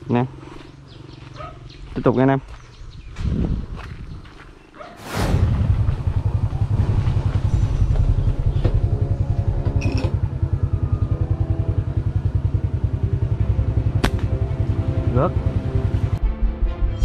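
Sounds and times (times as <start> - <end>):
motorbike engine running: 5.6 - 16.2.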